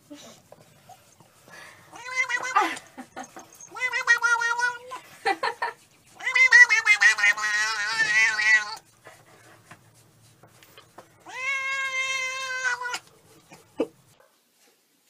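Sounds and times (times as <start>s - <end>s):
cat meowing: 1.9s - 2.8s, 3.6s - 5.0s, 6.2s - 8.8s, 11.2s - 13.1s.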